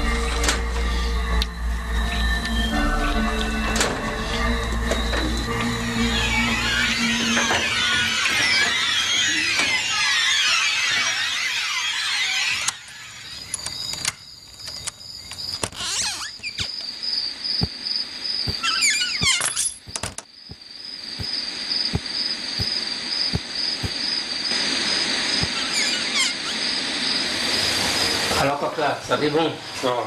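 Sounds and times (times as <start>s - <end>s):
night insects chirring: 0.0s - 30.0s
squealing creak: 0.3s - 14.2s, 15.6s - 16.9s, 18.5s - 20.0s, 25.4s - 26.6s
soft footsteps: 18.4s - 18.6s, 19.2s - 24.0s.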